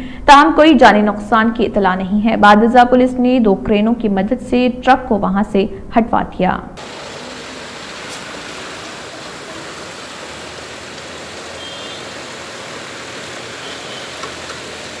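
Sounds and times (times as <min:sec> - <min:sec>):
steady outdoor rushing noise: 0:06.8 - 0:15.0.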